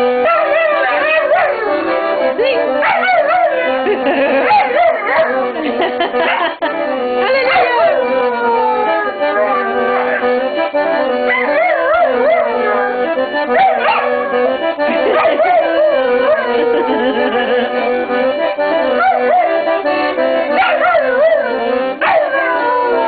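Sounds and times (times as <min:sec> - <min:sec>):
accordion playing chords: 0:00.0 - 0:23.0
dog howling and yipping: 0:00.2 - 0:01.9, 0:02.8 - 0:03.8, 0:04.4 - 0:05.4, 0:07.4 - 0:10.4, 0:11.3 - 0:17.3, 0:19.0 - 0:19.5, 0:20.6 - 0:23.0.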